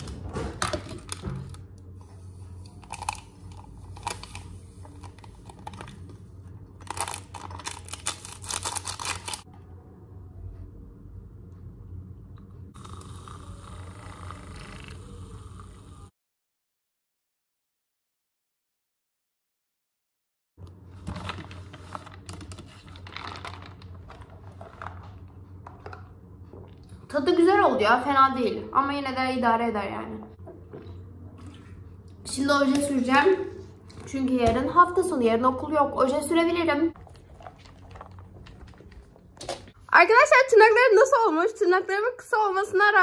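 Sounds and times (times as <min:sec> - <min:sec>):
steady low hum: 0:00.0 - 0:16.1
plastic foil sachets crinkling: 0:02.8 - 0:06.0, 0:06.8 - 0:09.4, 0:21.3 - 0:25.0.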